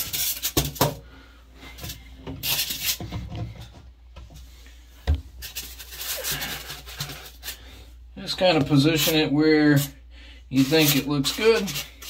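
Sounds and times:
styrofoam scraping against glass: 0.0 - 0.9, 1.8 - 3.1, 5.4 - 7.6, 8.4 - 12.0.

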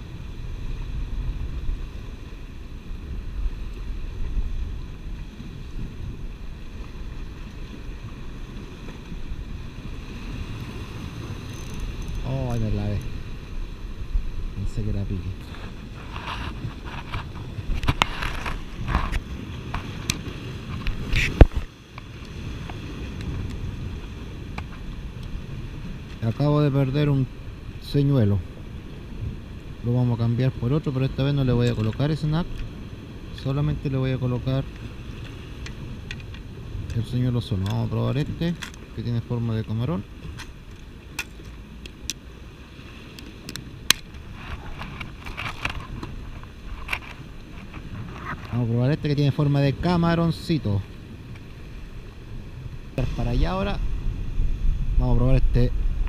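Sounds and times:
surf washing over rocks: 0.0 - 56.0
wind on microphone: 0.0 - 56.0
small handling noises: 43.2 - 48.7.

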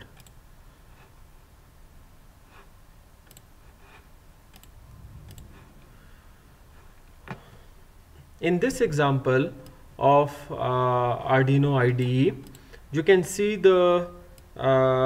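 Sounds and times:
computer mouse clicks: 0.0 - 0.4, 3.2 - 5.9.

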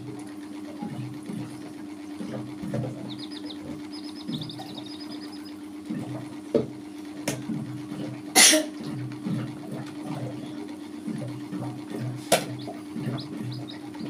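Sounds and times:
baby chicks cheeping: 0.1 - 14.0
low hum: 0.2 - 7.7.

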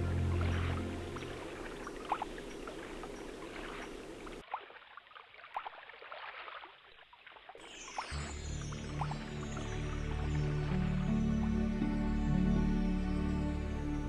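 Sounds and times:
water drips and plops: 0.0 - 10.9
small stream trickling: 0.0 - 13.7.

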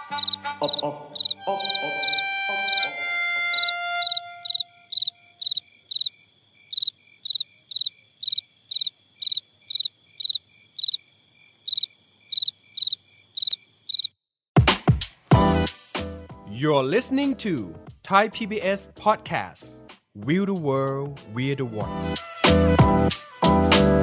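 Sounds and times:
cricket chirping: 0.0 - 2.9, 3.5 - 14.2.

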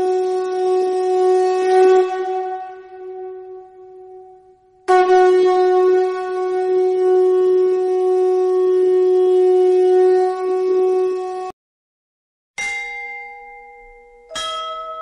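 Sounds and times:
conch shell blown: 0.0 - 11.5.

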